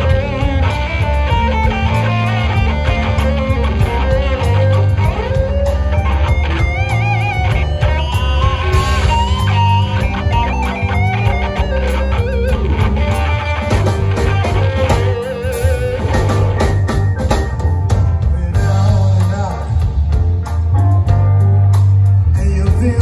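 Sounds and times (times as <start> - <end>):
bass guitar: 0.0 - 23.0
drums: 0.0 - 23.0
electric guitar with bent notes: 0.0 - 23.0.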